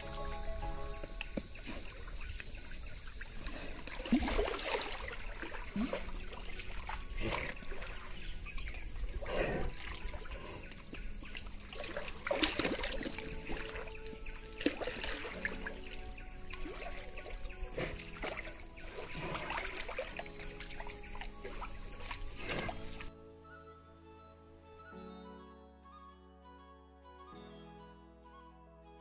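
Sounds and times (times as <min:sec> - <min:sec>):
steady high hiss: 0:00.0 - 0:03.2
water sloshing and splashing: 0:00.0 - 0:23.1.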